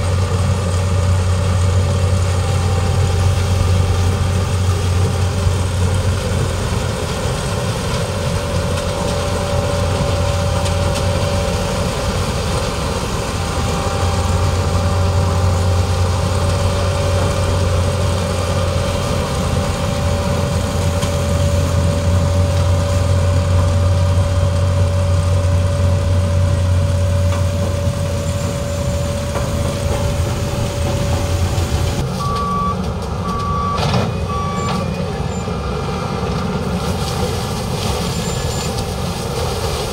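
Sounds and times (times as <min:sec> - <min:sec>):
diesel engines droning: 0:00.0 - 0:39.9
short high beeps: 0:32.2 - 0:35.5.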